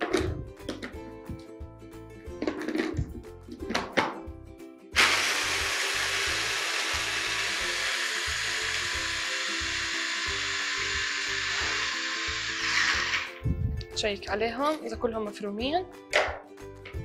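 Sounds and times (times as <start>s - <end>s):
food chopper grinding biscuits: 5.0s - 13.4s.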